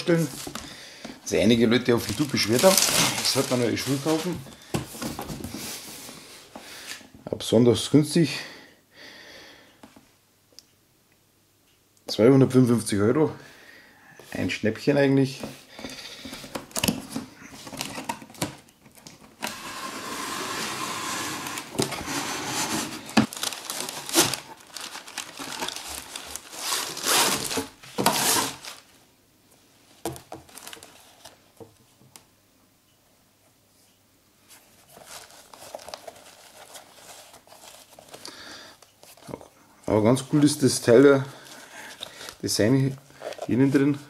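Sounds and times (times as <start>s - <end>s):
tissue paper rustling: 1.3s - 5.9s, 19.4s - 28.9s, 30.5s - 31.4s, 34.5s - 38.2s
cardboard box handled: 2.0s - 5.5s.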